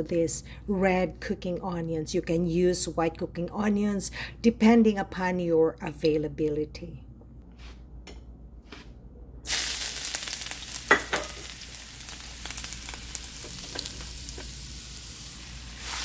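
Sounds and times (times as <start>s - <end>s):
oil sizzling in a wok: 9.5s - 16.0s.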